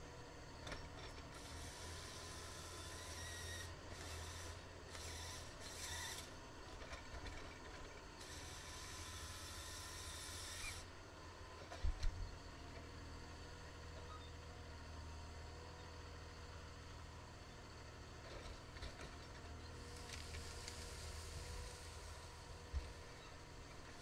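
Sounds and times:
diesel engine running: 0:16.4 - 0:24.0
hiss: 0:20.3 - 0:22.2.

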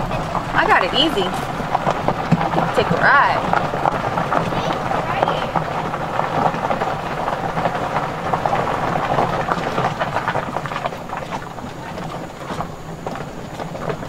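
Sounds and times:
low steady hum: 0:00.0 - 0:14.0
tyres rolling over gravel: 0:00.0 - 0:14.0.

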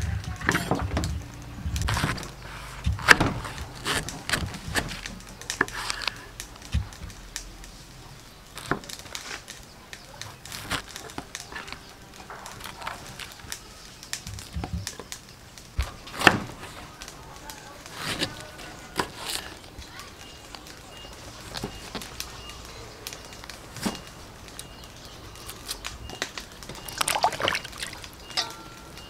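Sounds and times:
knife slicing banana flower: 0:01.8 - 0:06.8.

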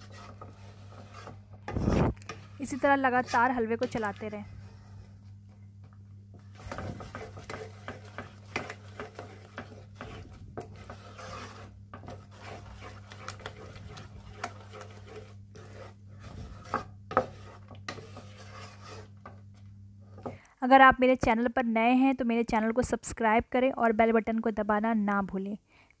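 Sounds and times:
wooden spatula scraping pan: 0:00.0 - 0:05.5, 0:06.3 - 0:20.4
steady low hum: 0:00.0 - 0:21.4.

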